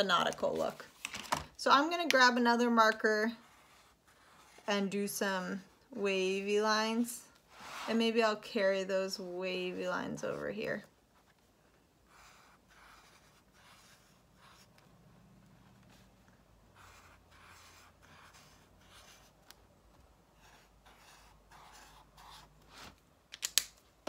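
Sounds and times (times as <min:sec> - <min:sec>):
marker scratching on paper: 0:03.0 - 0:05.7, 0:07.4 - 0:08.3, 0:12.1 - 0:19.6, 0:20.4 - 0:23.0.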